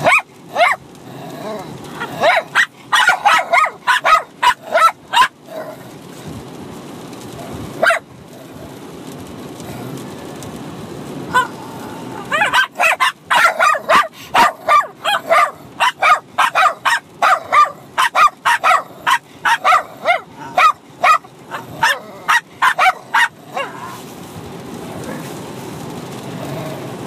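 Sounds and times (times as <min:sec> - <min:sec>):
small dogs barking: 0:00.0 - 0:01.0, 0:01.7 - 0:05.7, 0:07.7 - 0:08.1, 0:11.3 - 0:11.6, 0:12.2 - 0:24.0
car road rumble: 0:00.0 - 0:27.0.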